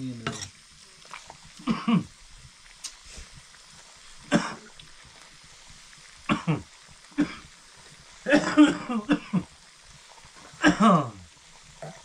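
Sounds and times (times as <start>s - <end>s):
person coughing: 1.6s - 2.1s, 4.3s - 4.7s, 6.3s - 6.6s, 7.2s - 7.4s, 8.3s - 9.4s, 10.6s - 11.2s.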